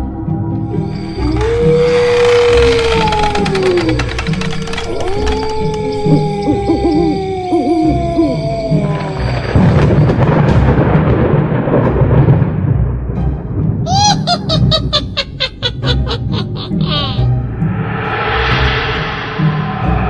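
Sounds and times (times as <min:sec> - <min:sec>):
thunder-like noise wash: 0:09.3 - 0:13.9.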